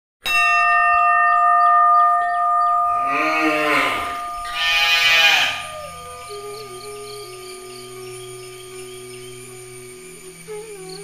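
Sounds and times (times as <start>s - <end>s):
steady ringing tone: 0.3s - 11.0s
cow mooing: 3.0s - 6.4s.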